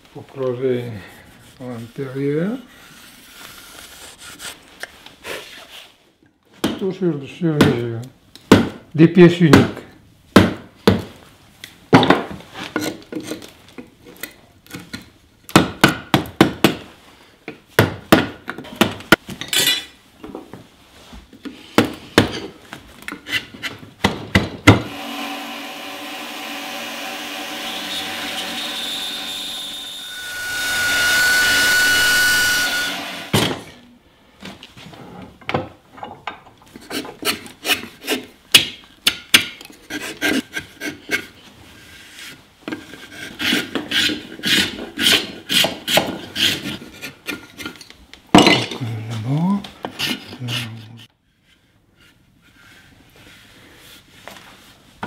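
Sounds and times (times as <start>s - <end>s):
gouge cutting wood: 24.9s - 33.4s.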